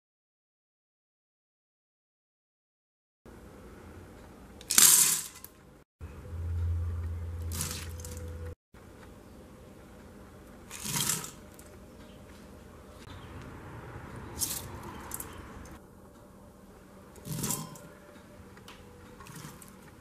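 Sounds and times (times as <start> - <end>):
low hum: 6.0 - 9.3
dried beans rattling: 7.5 - 8.2.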